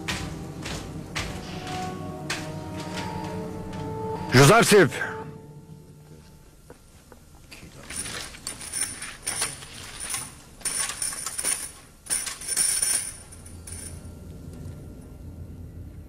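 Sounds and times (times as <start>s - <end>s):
metal rattling and clinking: 7.8s - 14.2s.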